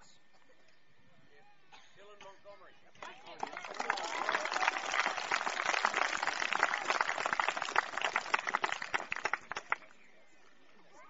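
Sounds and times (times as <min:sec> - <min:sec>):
people applauding: 0:03.0 - 0:10.0.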